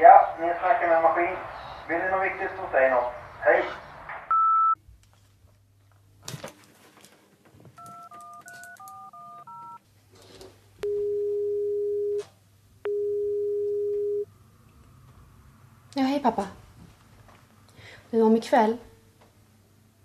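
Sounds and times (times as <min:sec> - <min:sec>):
phone keypad tones: 0:07.8 - 0:09.8, 0:10.8 - 0:12.3, 0:12.9 - 0:14.2
phone ringing tone: 0:07.8 - 0:09.8, 0:10.8 - 0:12.3, 0:12.9 - 0:14.3.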